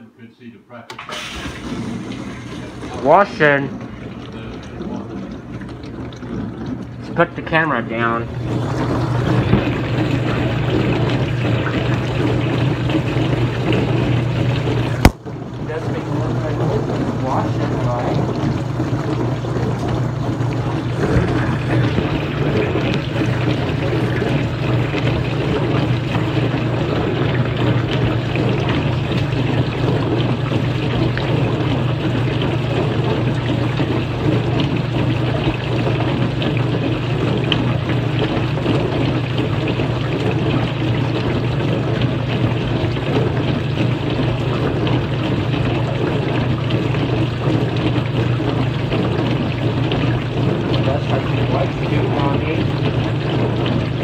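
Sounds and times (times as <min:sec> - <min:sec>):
dishwasher pump hum: 0:00.8 - 0:54.0
water splashing: 0:00.9 - 0:54.0.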